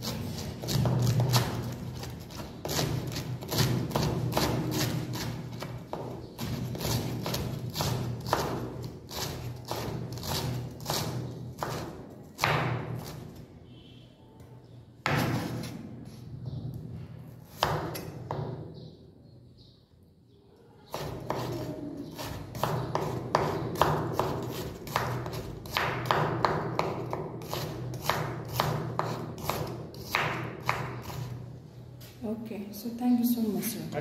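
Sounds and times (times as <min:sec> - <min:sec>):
knife chopping on wooden board: 0:00.0 - 0:13.2, 0:17.5 - 0:18.6, 0:20.9 - 0:31.4.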